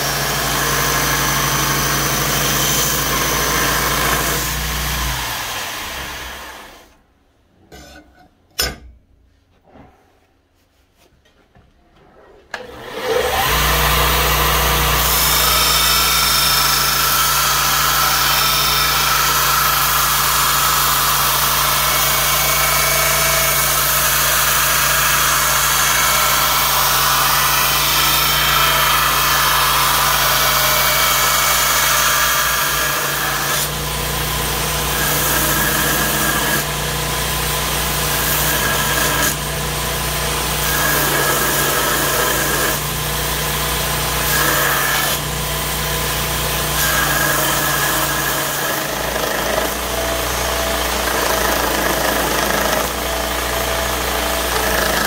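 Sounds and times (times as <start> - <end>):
belt grinder motor humming: 12.6 - 55.0
abrasive belt grinding metal: 13.1 - 39.4, 40.5 - 42.9.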